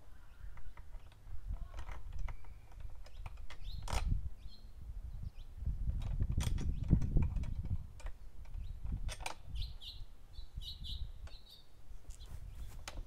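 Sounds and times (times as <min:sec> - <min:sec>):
small bird chirping: 0:01.6 - 0:05.6, 0:06.7 - 0:12.9
clicks of lawn mower handle: 0:06.0 - 0:09.5.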